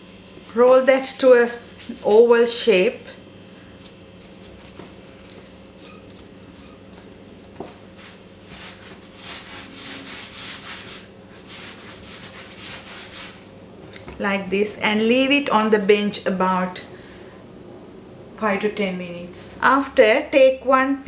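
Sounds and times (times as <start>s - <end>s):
hands rubbing dough: 0.0s - 14.3s
faint steady hum: 0.0s - 21.0s.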